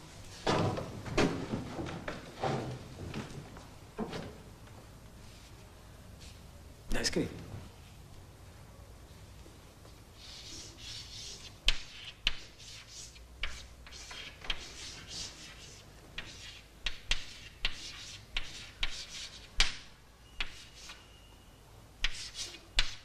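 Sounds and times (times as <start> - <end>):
chalk scratching on blackboard: 10.2 - 21.1, 22.0 - 23.0
chalk tapping on board: 10.4 - 21.0, 22.0 - 23.0.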